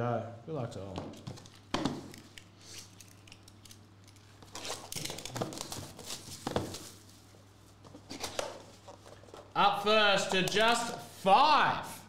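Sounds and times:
plastic wrap crinkling: 1.4s - 9.6s
cardboard rustling: 4.5s - 9.6s.

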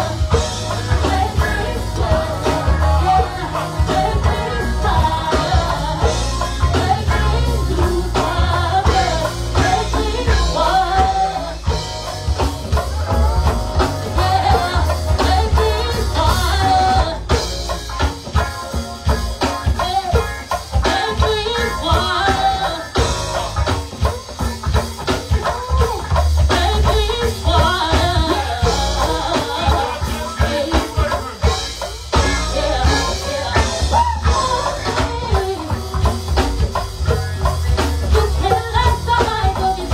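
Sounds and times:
person singing into microphone: 0.0s - 12.1s, 19.8s - 23.5s, 25.4s - 36.2s
strong bass: 0.0s - 18.3s, 25.7s - 39.9s
congas: 0.0s - 39.9s
drum kit: 0.0s - 39.9s
electric guitar: 0.0s - 39.9s
keyboard: 0.0s - 39.9s.

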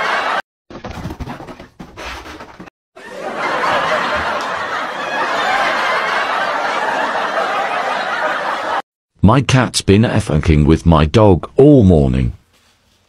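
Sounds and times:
people laughing loudly: 0.0s - 0.4s, 3.0s - 8.8s.

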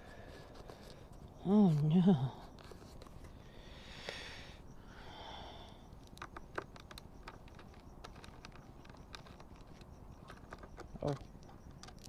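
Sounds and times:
soft breaths: 0.0s - 1.4s, 2.2s - 6.1s
fingers clicking and tapping plastic: 5.9s - 12.0s.

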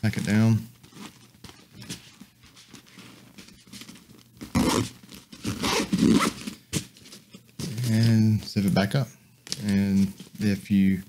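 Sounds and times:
nylon fabric rustling: 0.1s - 8.7s
fabric scraping: 0.8s - 8.2s.

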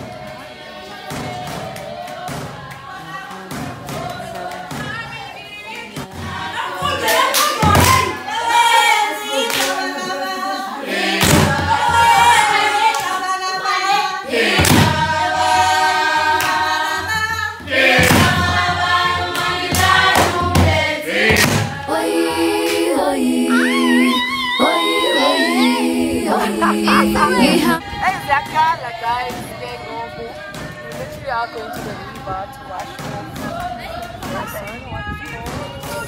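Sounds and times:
choir singing: 0.0s - 30.9s
single voice sliding: 26.3s - 27.8s.

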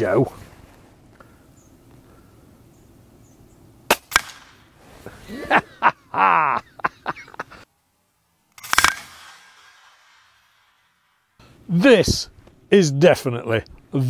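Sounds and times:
air rifle shot crack: 3.9s - 4.7s, 8.6s - 10.5s
man laughing loudly: 5.1s - 7.6s.

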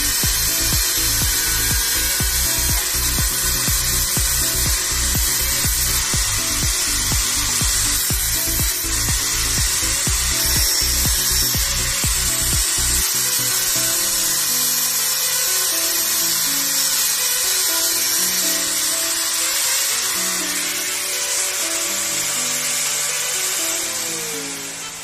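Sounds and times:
melodic bass line: 0.0s - 13.0s
background music with low thumps: 0.0s - 13.1s
angle grinder grinding metal: 0.0s - 25.0s.

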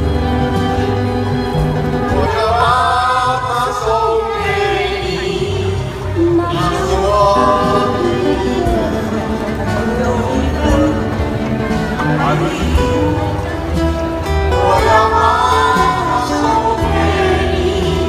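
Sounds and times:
instrumental backing with bass line: 0.0s - 18.0s
person singing long sliding notes: 2.0s - 13.6s, 14.5s - 18.0s.

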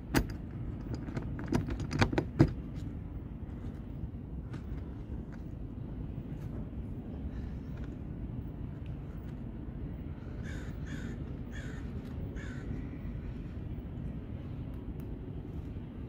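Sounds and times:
steady low rumble: 0.0s - 16.0s
bird calling: 10.2s - 13.4s.

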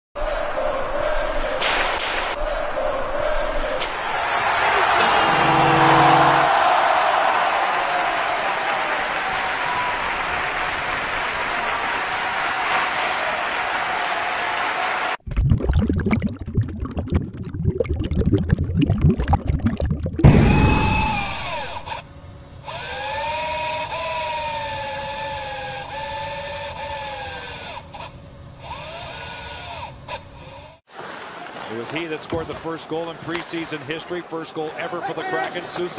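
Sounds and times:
crowd applause: 4.0s - 15.2s
motor-like electric whines: 4.8s - 13.0s, 20.2s - 30.8s
crackling low rumble: 15.3s - 22.6s.

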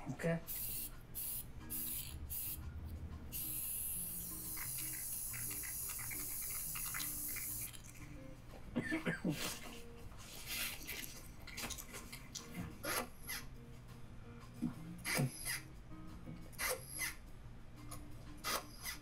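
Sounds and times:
spray paint can hissing: 0.5s - 2.6s, 3.3s - 7.8s.

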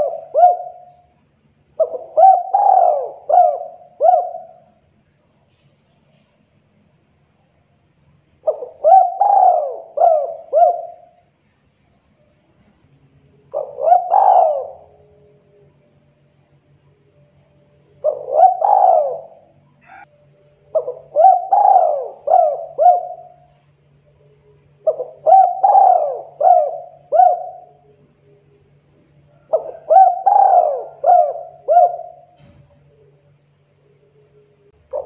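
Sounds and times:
dove cooing: 0.0s - 1.1s, 1.8s - 4.8s, 8.4s - 11.2s, 13.5s - 15.1s, 18.0s - 20.1s, 20.7s - 23.5s, 24.8s - 28.0s, 29.3s - 33.2s.

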